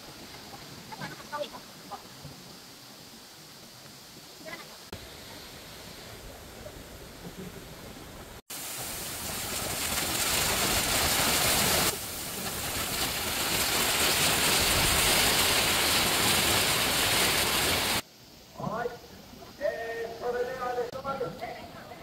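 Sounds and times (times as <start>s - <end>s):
waterfall rushing onto boulders: 8.4s - 18.0s.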